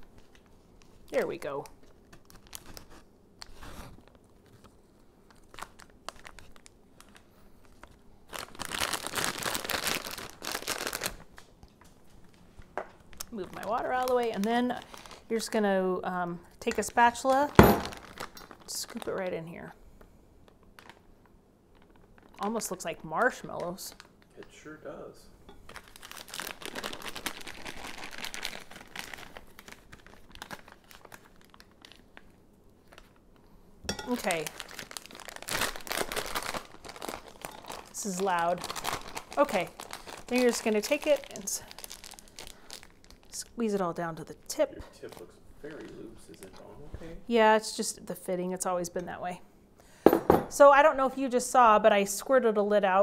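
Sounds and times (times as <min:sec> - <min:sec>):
plastic bag crinkling: 0:00.0 - 0:15.5, 0:16.8 - 0:19.4, 0:20.4 - 0:24.7, 0:25.6 - 0:33.2, 0:34.0 - 0:43.6, 0:44.9 - 0:46.7.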